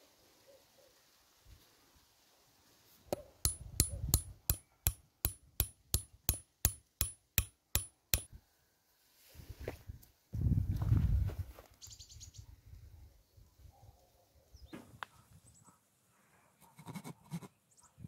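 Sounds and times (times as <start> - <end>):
ringing hammer taps: 3.5 - 8.3.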